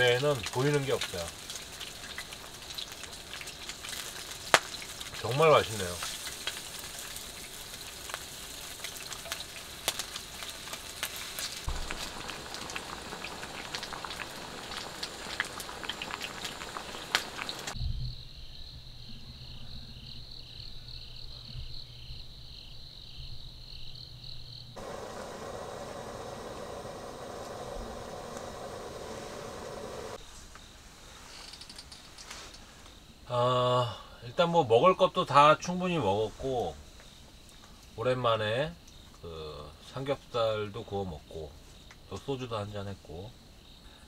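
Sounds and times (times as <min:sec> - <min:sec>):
meat sizzling on grill: 0:00.0 - 0:17.8, 0:24.8 - 0:30.2
low hum: 0:11.7 - 0:17.8, 0:24.8 - 0:30.2.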